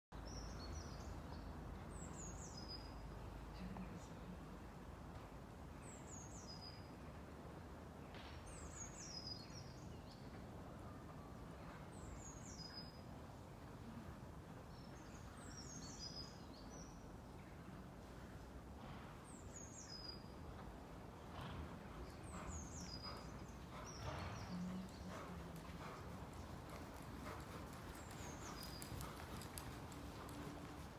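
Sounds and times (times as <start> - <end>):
songbird singing: 0.2 - 4.4, 8.0 - 14.0, 14.6 - 17.8, 19.2 - 20.7, 21.4 - 30.9.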